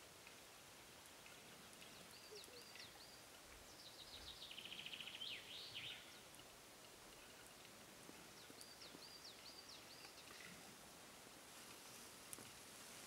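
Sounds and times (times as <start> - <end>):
songbird chirping and trilling: 1.5 - 6.5, 8.3 - 10.5.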